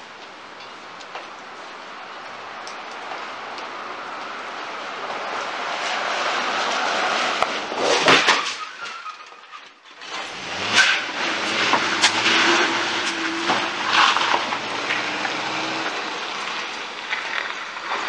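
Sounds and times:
vehicle rumble: 0.0s - 18.0s
loud crunching car collision: 5.9s - 18.0s.

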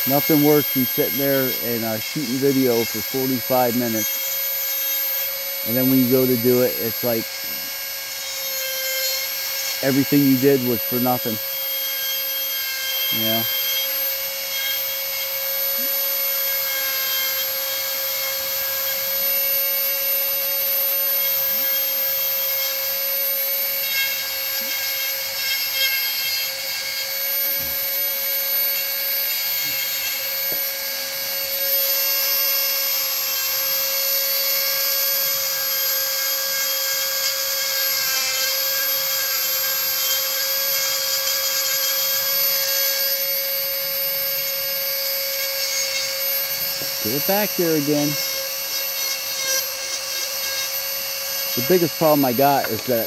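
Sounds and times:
burr grinding into wood: 0.0s - 4.1s
rotary tool whining: 0.0s - 53.0s.

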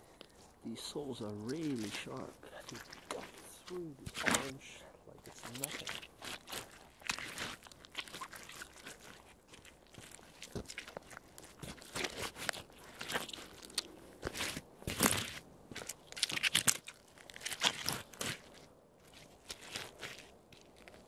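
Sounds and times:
boots crunching fruit on asphalt: 0.0s - 21.0s.

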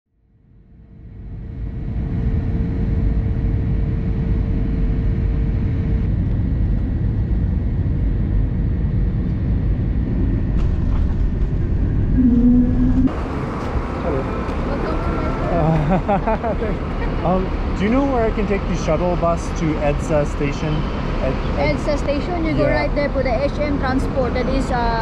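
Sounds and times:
steady hum: 1.0s - 25.0s
airliner cabin rumble: 1.9s - 21.6s.

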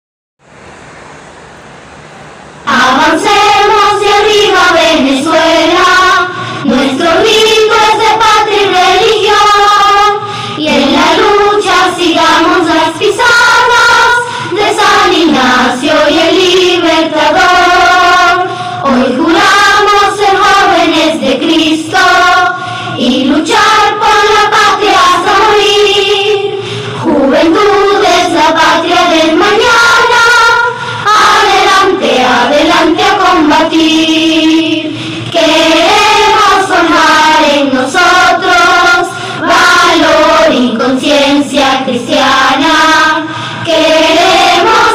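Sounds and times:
faint hiss: 0.4s - 44.9s
choir singing a hymn: 2.7s - 44.9s.

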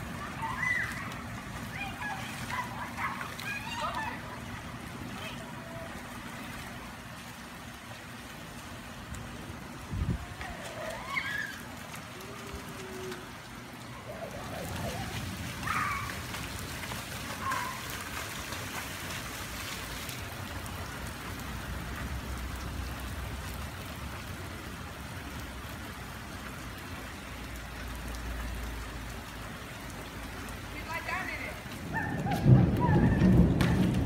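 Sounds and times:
rain on pavement: 0.0s - 34.0s
children's voices: 0.1s - 4.5s.

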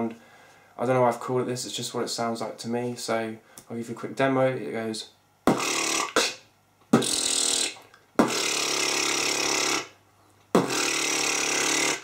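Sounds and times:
beatboxer lip bass buzzing: 5.4s - 12.0s.

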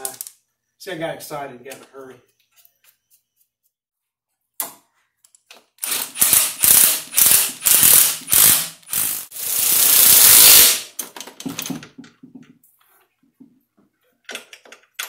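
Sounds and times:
ratchet wrench ratcheting: 5.8s - 10.8s.

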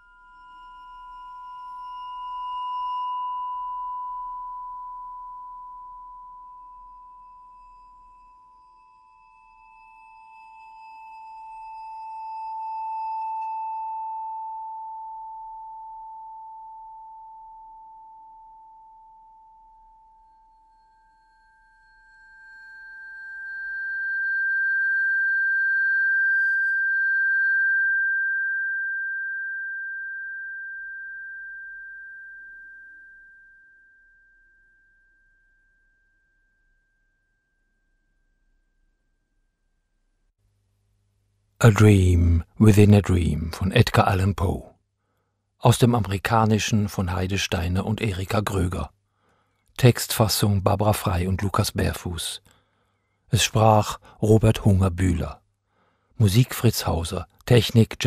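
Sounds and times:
long pure ringing tones: 0.0s - 40.4s.

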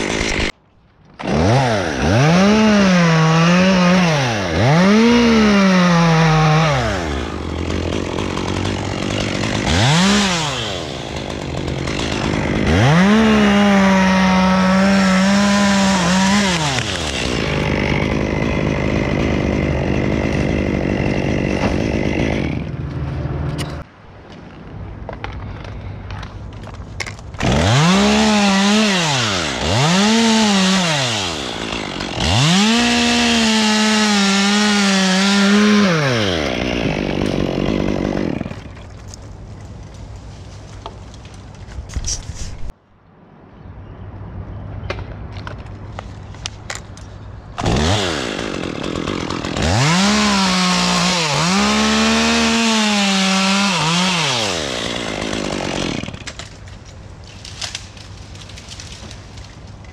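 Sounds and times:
chainsaw revving and idling: 0.0s - 0.5s, 1.2s - 22.8s, 27.4s - 38.8s, 47.6s - 56.4s.

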